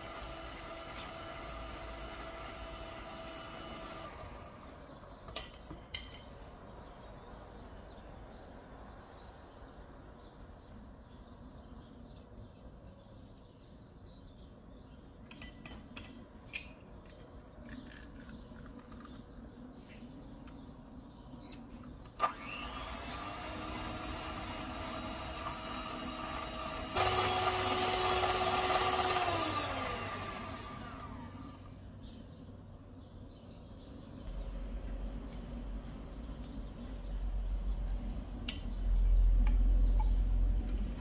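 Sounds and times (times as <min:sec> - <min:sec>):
electric hand mixer whirring: 0:00.0 - 0:04.8, 0:22.2 - 0:31.8.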